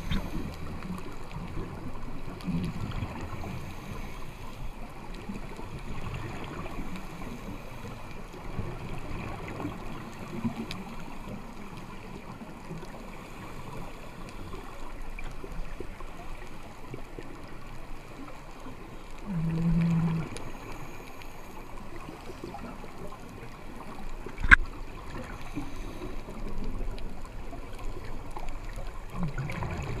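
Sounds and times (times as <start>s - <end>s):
underwater watery hiss: 0.0s - 2.0s, 2.7s - 4.8s, 5.9s - 15.0s, 19.2s - 23.1s, 23.8s - 27.0s
faint crackles: 0.0s - 30.0s.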